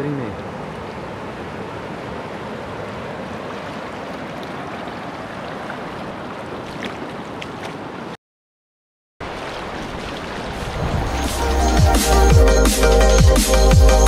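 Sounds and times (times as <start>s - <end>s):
waves washing on a beach: 0.0s - 8.1s, 9.2s - 11.4s.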